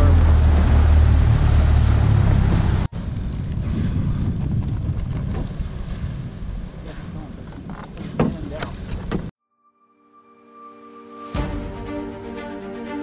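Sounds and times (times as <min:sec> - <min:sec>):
boat running at speed: 0:00.0 - 0:02.9
wind buffeting microphone: 0:02.2 - 0:09.3.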